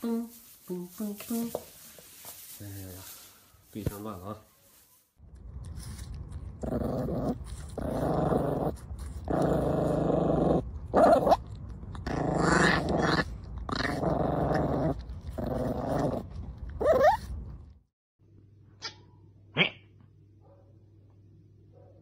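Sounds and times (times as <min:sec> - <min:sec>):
puppy growling: 0:05.6 - 0:17.7.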